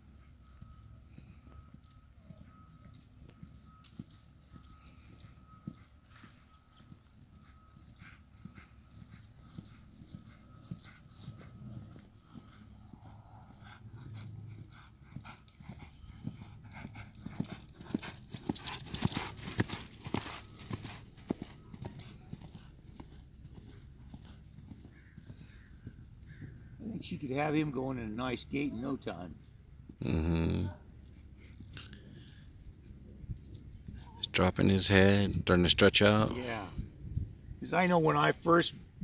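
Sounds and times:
horse hooves on dirt: 0:00.0 - 0:30.0.

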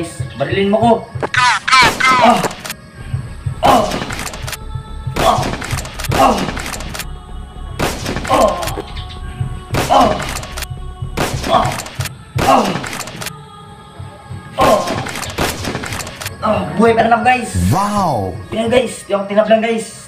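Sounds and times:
background music with steady beat: 0:00.0 - 0:20.0
sniper rifle gunshots: 0:05.2 - 0:07.0, 0:14.9 - 0:16.3.

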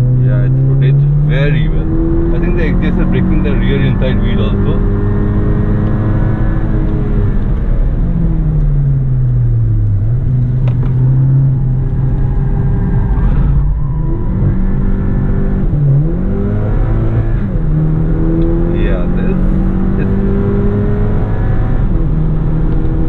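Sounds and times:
car engine from inside cabin: 0:00.0 - 0:23.0
road and tyre noise: 0:00.0 - 0:23.0.

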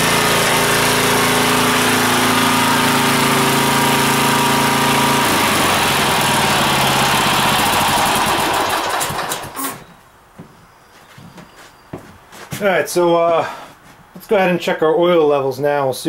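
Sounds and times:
lawn mower engine running: 0:00.0 - 0:09.8.

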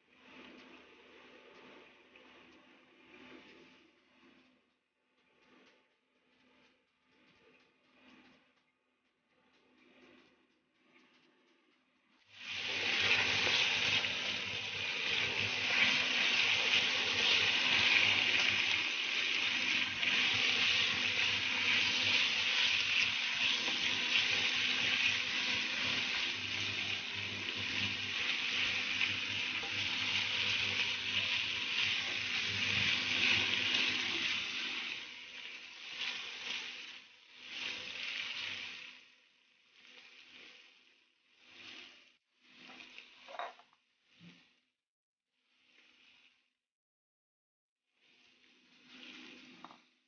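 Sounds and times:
spatula stirring in a pan: 0:11.8 - 0:44.6
chicken sizzling in a pan: 0:12.3 - 0:44.5, 0:47.9 - 0:50.0.

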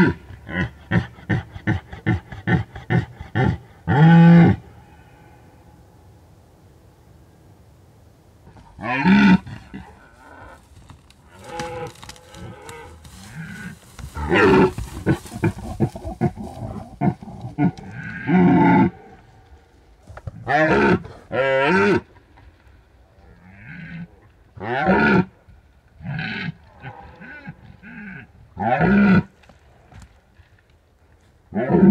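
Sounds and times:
deer stags roaring: 0:08.4 - 0:22.1.

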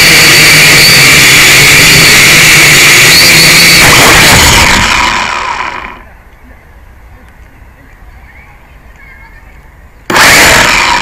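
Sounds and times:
drone motors whining: 0:00.0 - 0:06.6, 0:10.1 - 0:11.0.

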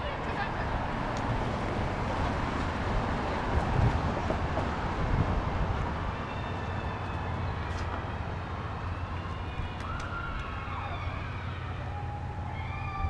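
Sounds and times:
cars driving past: 0:00.0 - 0:13.0
distant wavering siren: 0:05.6 - 0:13.0.

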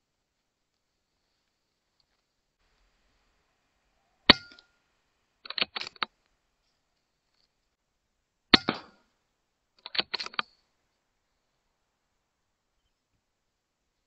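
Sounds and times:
metallic clicks of rifle action: 0:05.4 - 0:06.2, 0:09.8 - 0:10.6
air rifle shot: 0:08.6 - 0:09.0.

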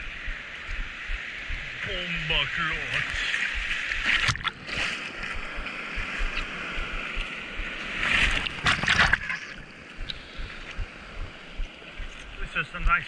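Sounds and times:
wave splashing over board: 0:01.5 - 0:11.0.

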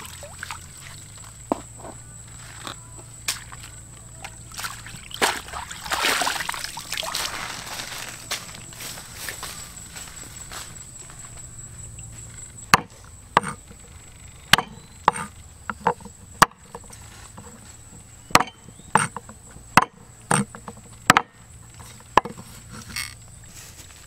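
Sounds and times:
blade chopping on wood: 0:12.7 - 0:13.6, 0:14.5 - 0:16.9, 0:18.3 - 0:21.4, 0:22.1 - 0:22.4.

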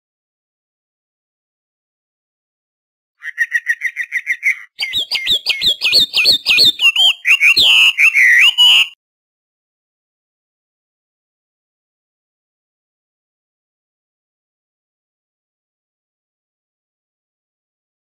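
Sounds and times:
starling trilling and whistling: 0:03.2 - 0:09.0.

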